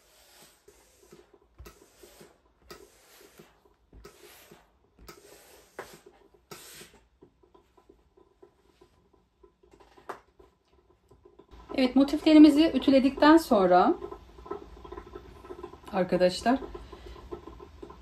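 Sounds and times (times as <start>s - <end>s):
iron swishing over cloth: 0.0s - 7.2s.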